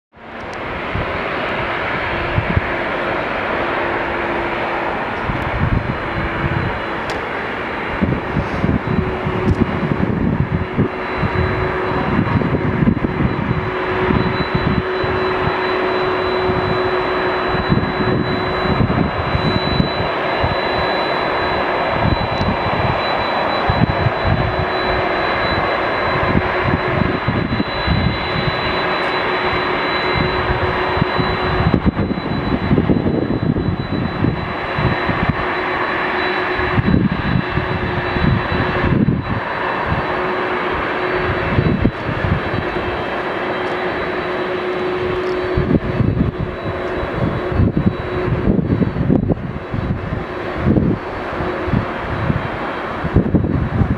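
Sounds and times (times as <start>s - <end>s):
jet engines roaring: 0.1s - 53.9s
low buffeting: 0.2s - 53.9s
low rumbles: 0.4s - 53.9s
faint steady tone: 3.0s - 53.9s.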